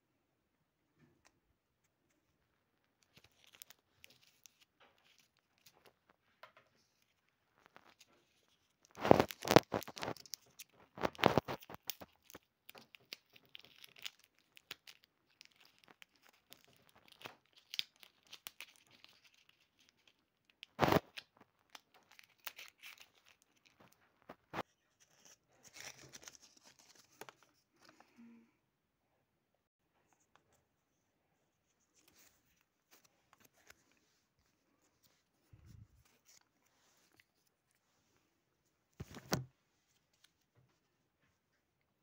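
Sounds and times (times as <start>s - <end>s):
paper crinkling: 3.0s - 6.2s, 6.8s - 28.2s, 31.6s - 38.0s.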